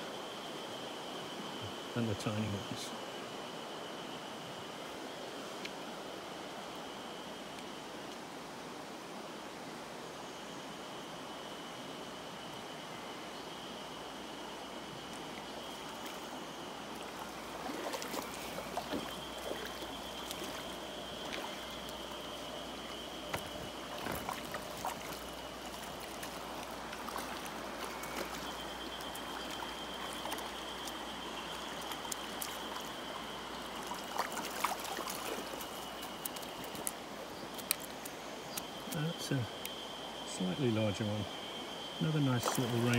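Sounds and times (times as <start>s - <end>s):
stony river running: 0.0s - 42.9s
thin high steady tone: 10.2s - 42.9s
short water splashes: 17.0s - 33.0s, 33.8s - 36.9s, 42.1s - 42.9s.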